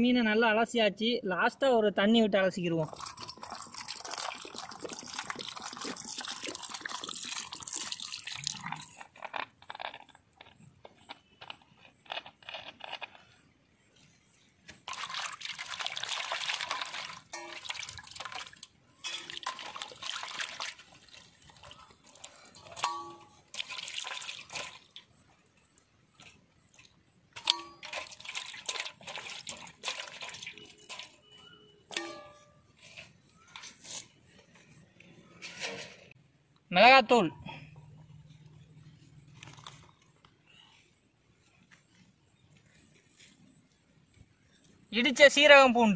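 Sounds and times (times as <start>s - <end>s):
steel basin clinking: 2.8s - 9.0s, 14.9s - 25.0s, 27.3s - 33.1s
water pouring and splashing: 2.8s - 10.1s, 14.6s - 34.2s.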